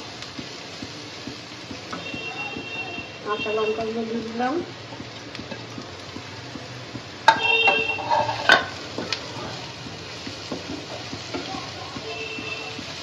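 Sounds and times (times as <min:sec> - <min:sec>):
food sizzling in oil: 0:00.0 - 0:13.0
spatula knocking against pan: 0:05.0 - 0:09.2
spatula scraping frying pan: 0:07.2 - 0:09.5.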